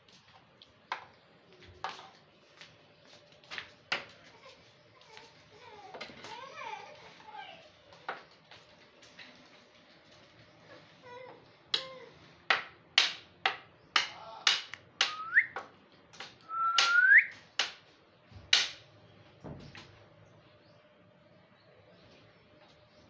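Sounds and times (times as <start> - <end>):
short rising whistles: 16.5 - 17.4.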